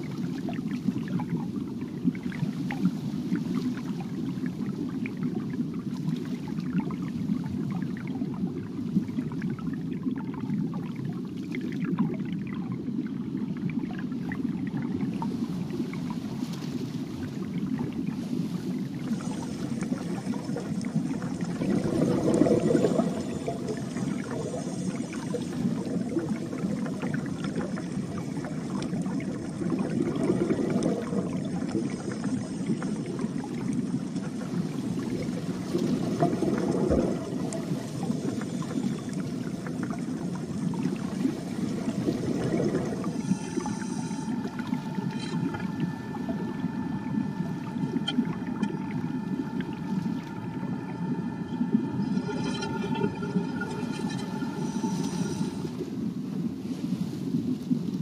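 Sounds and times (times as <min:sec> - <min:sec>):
water rushing and trickling: 0:13.8 - 0:58.0.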